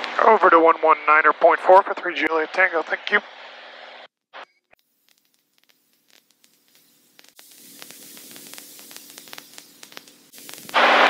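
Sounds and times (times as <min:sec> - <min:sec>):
radio static hiss: 0:00.0 - 0:11.0
person speaking over radio: 0:00.2 - 0:03.3
scattered clicks: 0:05.1 - 0:10.8.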